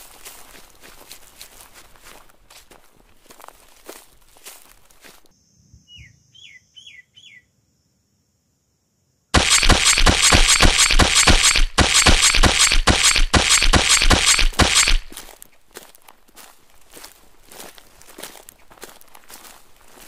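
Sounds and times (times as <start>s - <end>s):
bird chirps: 5.4s - 7.5s
rapid gunfire: 9.4s - 15.2s.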